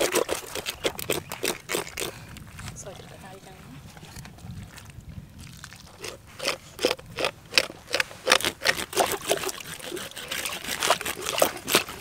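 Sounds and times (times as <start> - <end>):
knife scraping hide: 0.0 - 2.2, 6.0 - 12.0.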